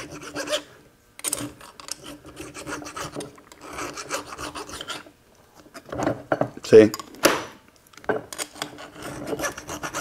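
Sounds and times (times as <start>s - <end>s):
hand file scraping steel: 0.0s - 0.7s, 2.0s - 5.1s, 8.5s - 10.0s.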